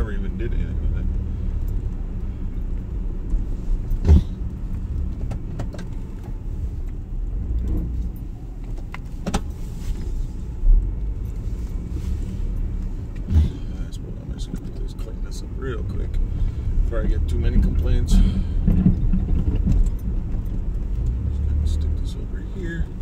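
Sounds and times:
pickup engine rumbling: 0.0 - 23.0
clunks and knocks: 3.9 - 6.4, 17.0 - 21.3.

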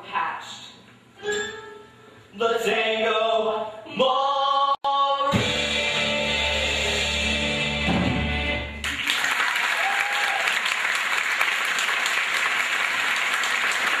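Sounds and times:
audience applause: 8.8 - 14.0.

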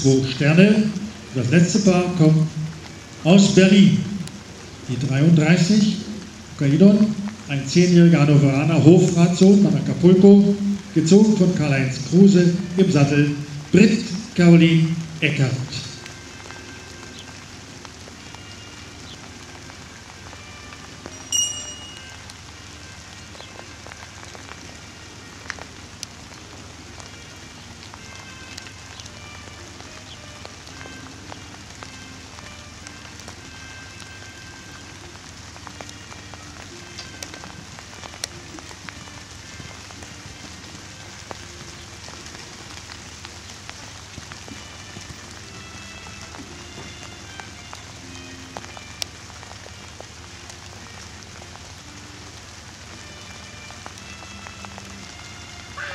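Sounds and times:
faint music: 0.0 - 55.9
light rain patter: 0.0 - 55.9
brief high tone: 21.2 - 22.2.

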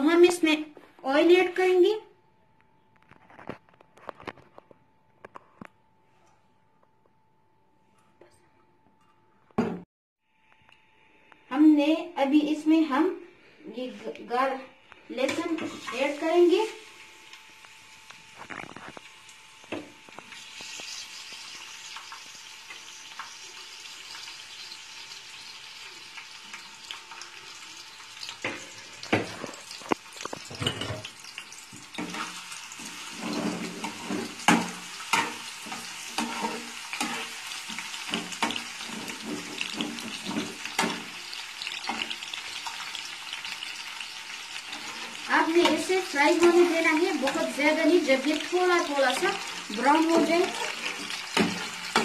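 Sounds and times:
garlic sizzling in oil: 15.1 - 52.0.

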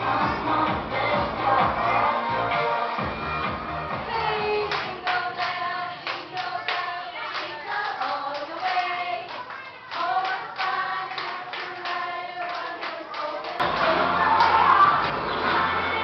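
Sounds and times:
women singing together: 0.0 - 2.8, 4.0 - 16.0
dance music with heavy beat: 0.0 - 4.7
hand clapping: 4.7 - 15.2.

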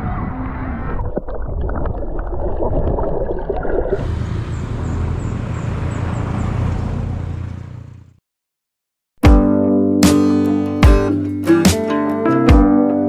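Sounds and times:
water: 0.7 - 4.9
wind: 3.7 - 8.2.

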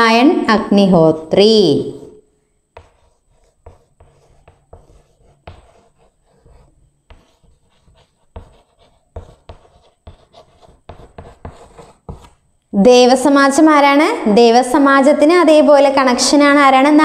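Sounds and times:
chalk scratching on chalkboard: 2.7 - 12.4.

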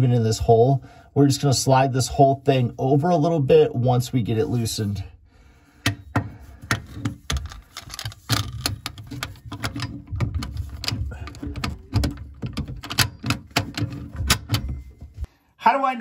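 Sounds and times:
metal wrench clicks and knocks: 5.8 - 15.3.

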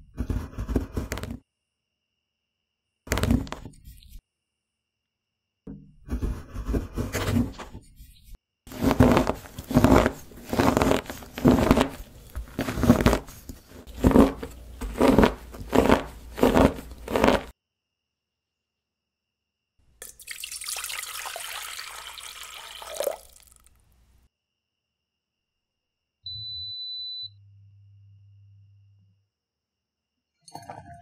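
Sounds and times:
knife chopping chocolate on board: 8.8 - 17.5.

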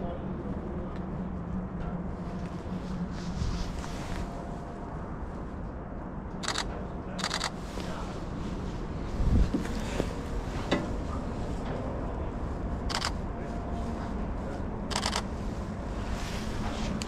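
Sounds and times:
steady low rumble: 0.0 - 17.0
clothing and gloves rubbing: 2.3 - 4.8, 15.4 - 17.0.

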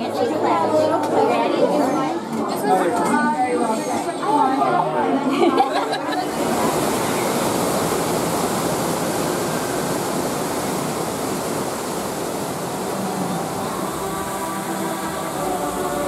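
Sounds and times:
waterfall rushing: 6.2 - 16.0.

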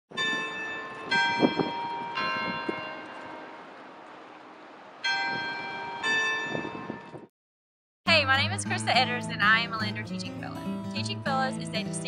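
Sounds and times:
tower bells chiming: 0.1 - 7.3.

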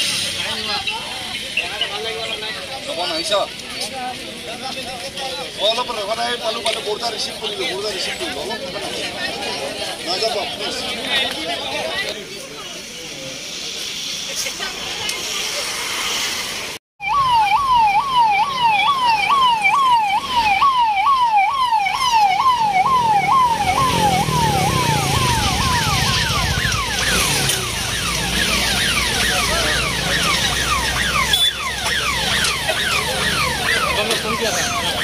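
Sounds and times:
motorcycle engines rumbling: 0.0 - 35.0
police sirens wailing: 17.0 - 35.0.

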